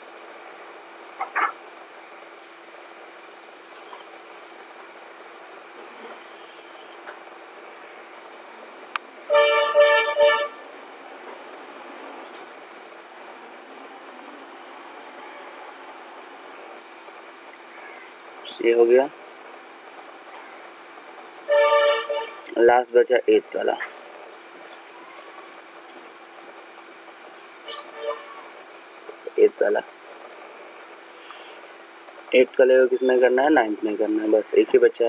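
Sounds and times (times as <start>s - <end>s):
faint background hiss: 0.0s - 35.0s
horn honking short toots: 9.3s - 10.8s, 21.5s - 22.6s, 27.7s - 28.5s.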